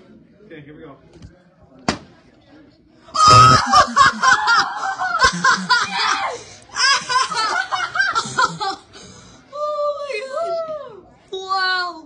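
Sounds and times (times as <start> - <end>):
kids laughing: 3.2 - 8.9.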